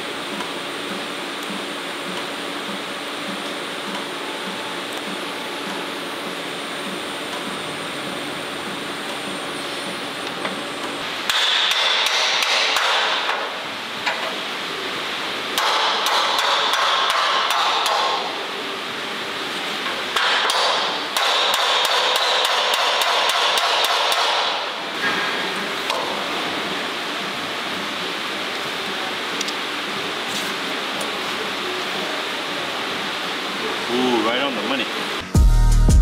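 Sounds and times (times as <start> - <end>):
rapid hammering on metal: 11.2 - 13.5, 15.6 - 18.3, 20.2 - 24.7.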